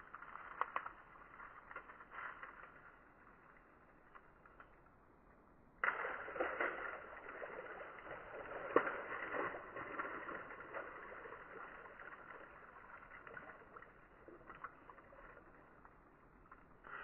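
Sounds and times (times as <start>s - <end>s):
creek water splashing: 5.7s - 17.0s
sharp splash: 5.8s - 17.0s.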